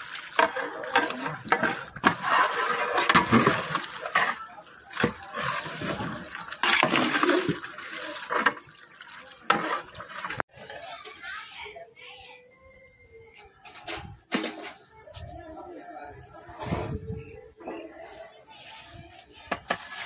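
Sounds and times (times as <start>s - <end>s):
ladle squelching and scraping meat: 0.0s - 10.5s.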